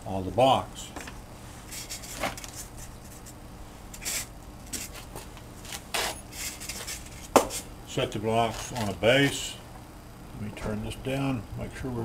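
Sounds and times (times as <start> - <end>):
faint steady hum: 0.0 - 12.0
foam scraping and rubbing: 1.6 - 3.4, 4.0 - 7.7.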